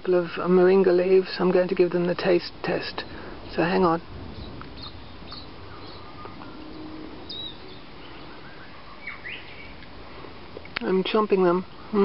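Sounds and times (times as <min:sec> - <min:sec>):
outdoor background noise: 0:00.0 - 0:12.0
faint bird chirps: 0:04.2 - 0:09.8.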